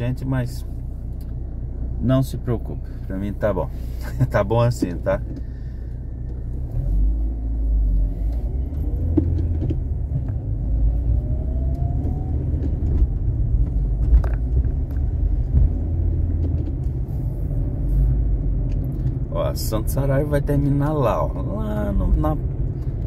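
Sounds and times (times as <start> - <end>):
car engine and road rumble: 0.0 - 23.0
faint rising whine: 6.1 - 13.5.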